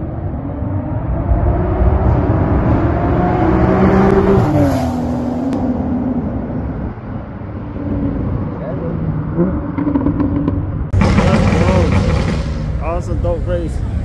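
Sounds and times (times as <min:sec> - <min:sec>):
car accelerating past: 0:00.3 - 0:06.6.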